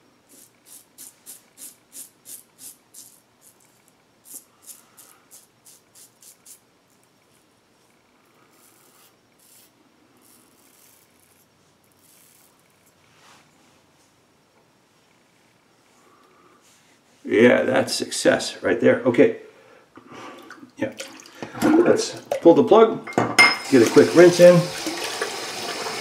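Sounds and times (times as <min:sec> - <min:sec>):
razor scraping stubble: 0:00.3 - 0:07.4, 0:08.3 - 0:12.9.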